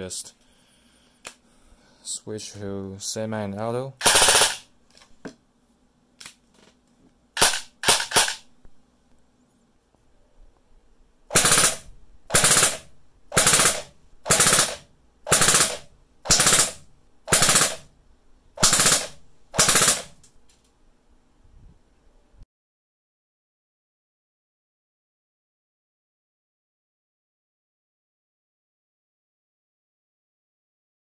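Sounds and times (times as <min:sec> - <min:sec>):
airsoft gun full-auto bursts: 0:04.0 - 0:04.7, 0:07.4 - 0:08.5, 0:11.3 - 0:17.9, 0:18.6 - 0:20.2
airsoft gun single shots: 0:07.4 - 0:08.4.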